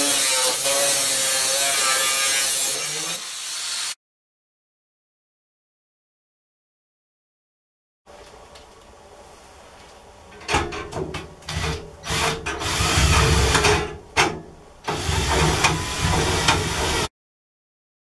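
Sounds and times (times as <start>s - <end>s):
power tool working into wood: 0.0s - 4.0s, 14.9s - 17.1s.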